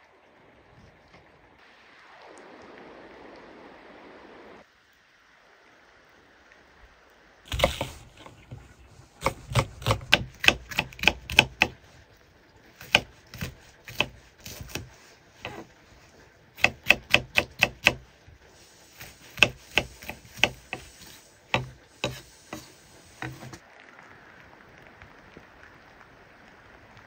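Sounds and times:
knife chopping on cutting board: 0:07.5 - 0:08.6, 0:09.2 - 0:11.8, 0:12.8 - 0:15.7, 0:16.6 - 0:18.0, 0:19.0 - 0:23.6.

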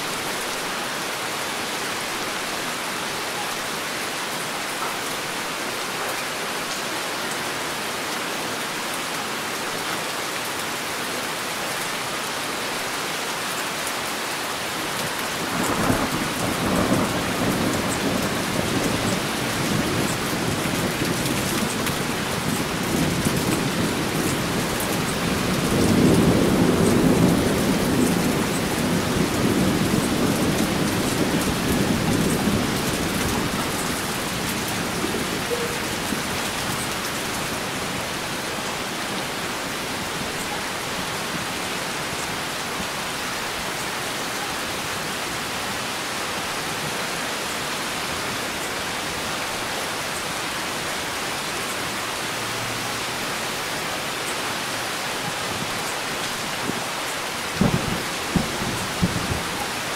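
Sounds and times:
heavy rain: 0:00.0 - 0:59.9
thunder rolling: 0:57.6 - 0:59.6.

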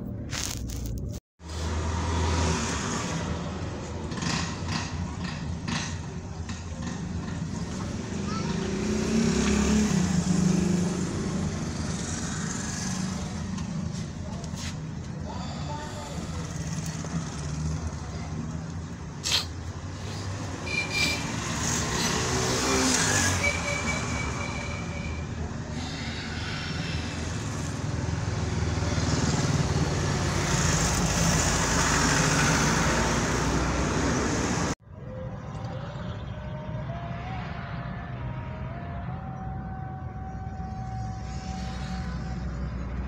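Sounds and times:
traffic noise from inside vehicle: 0:00.0 - 0:43.0
motorcycles passing: 0:01.4 - 0:43.0
vehicle hum rising in pitch: 0:19.9 - 0:43.0.

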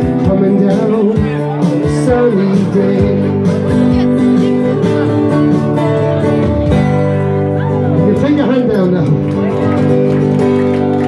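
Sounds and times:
person singing: 0:00.0 - 0:05.3
acoustic guitar strumming: 0:00.0 - 0:11.0.

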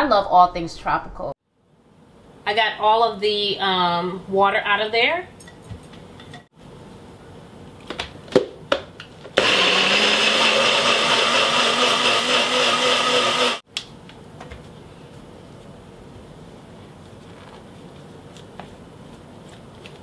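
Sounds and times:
blender motor running: 0:09.4 - 0:13.6.

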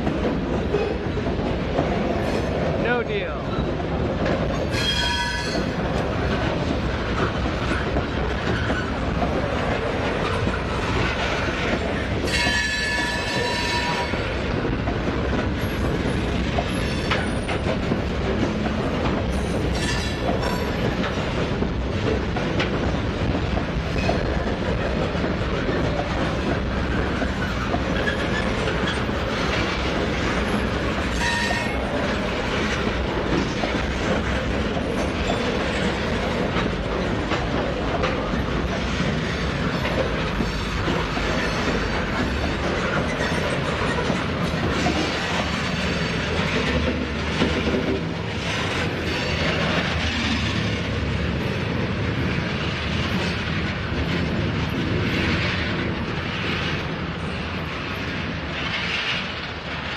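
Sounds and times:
train wheels clicking over rail joints: 0:00.0 - 0:59.9
train wheel squeal: 0:04.7 - 0:05.8, 0:08.4 - 0:09.0, 0:12.2 - 0:14.3, 0:16.7 - 0:17.7, 0:19.3 - 0:20.8, 0:27.2 - 0:29.4, 0:30.4 - 0:32.1, 0:39.3 - 0:44.2.

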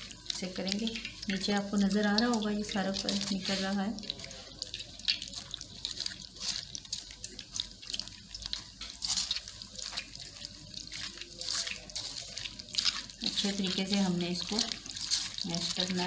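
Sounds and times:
liquid dripping into steel bowl: 0:00.0 - 0:16.0
wet squelches: 0:00.0 - 0:16.0.

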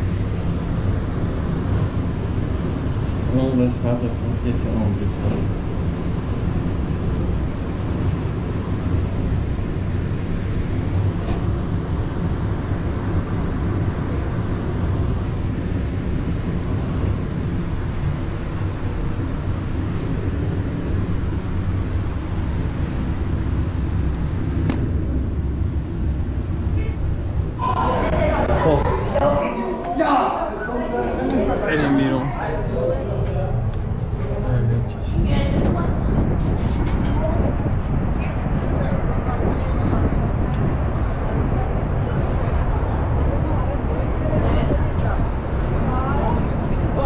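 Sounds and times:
elevator hum and rumble: 0:00.0 - 0:47.0.

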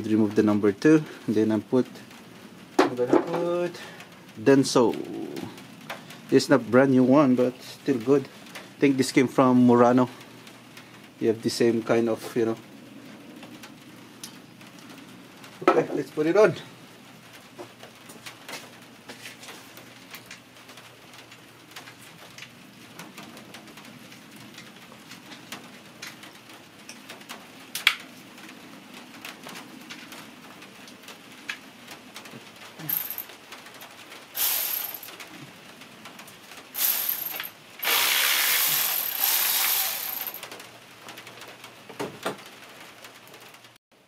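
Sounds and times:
tools clicking and tapping: 0:32.8 - 0:33.3, 0:36.8 - 0:37.6
harsh hissing noise: 0:34.3 - 0:35.2, 0:36.7 - 0:40.5.

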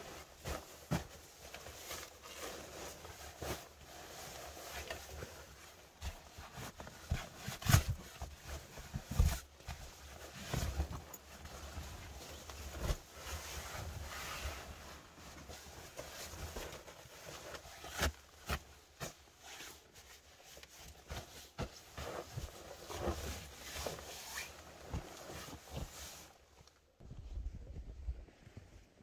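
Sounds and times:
sleeping bag rustling: 0:00.0 - 0:26.6.

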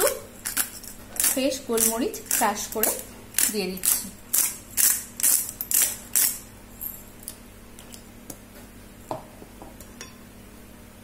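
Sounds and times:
pepper grinder grinding: 0:00.0 - 0:06.5.

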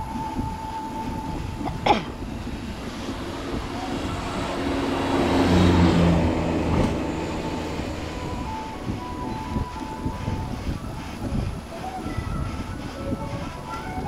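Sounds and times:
road and wind noise: 0:00.0 - 0:14.0
truck engine passing: 0:00.9 - 0:10.8.

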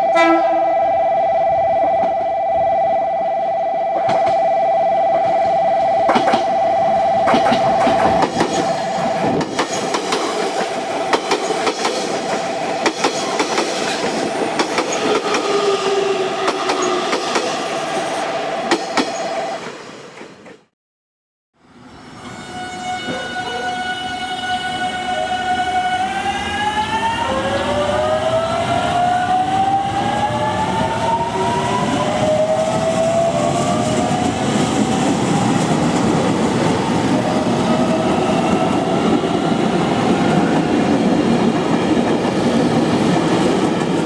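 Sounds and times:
train wheels rolling on rails: 0:05.1 - 0:06.6, 0:07.2 - 0:20.7, 0:26.5 - 0:44.0.

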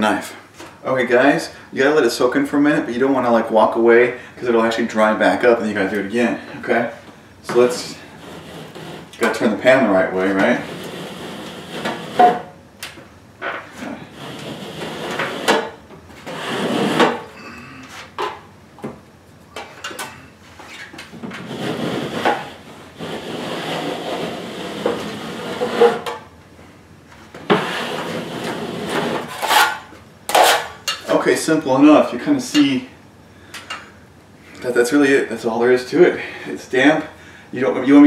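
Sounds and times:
putty knife scraping ceiling: 0:07.5 - 0:12.5, 0:13.5 - 0:17.3, 0:20.0 - 0:26.2, 0:27.5 - 0:30.8.

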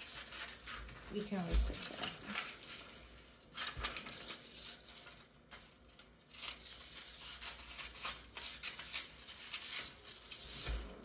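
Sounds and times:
scissors snipping paper: 0:00.0 - 0:02.5, 0:06.3 - 0:10.9
paper rustling: 0:00.0 - 0:11.0.

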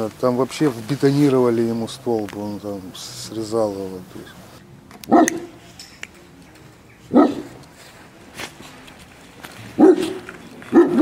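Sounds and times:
dog barking: 0:05.1 - 0:05.6, 0:07.1 - 0:07.6, 0:09.8 - 0:11.0.

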